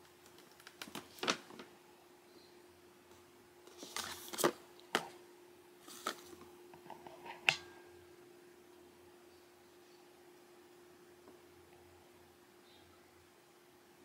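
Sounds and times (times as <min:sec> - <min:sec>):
faint steady hum: 0:00.0 - 0:14.0
packaging clicks: 0:00.2 - 0:01.7
packaging rustling: 0:00.2 - 0:01.7.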